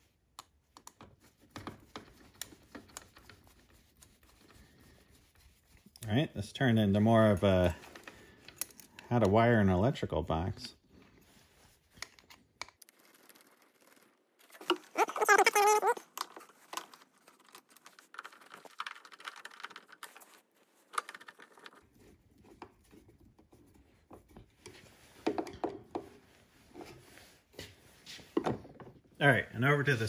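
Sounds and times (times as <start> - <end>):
wavering squeaky tone: 14.9 - 16.0.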